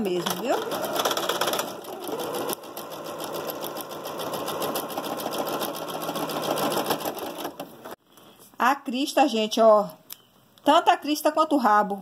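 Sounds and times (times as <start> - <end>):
sewing machine stitching: 0.0 - 8.0.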